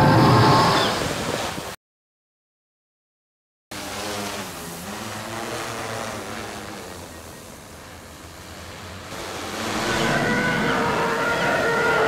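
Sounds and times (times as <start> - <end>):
drone propellers humming: 3.8 - 12.0.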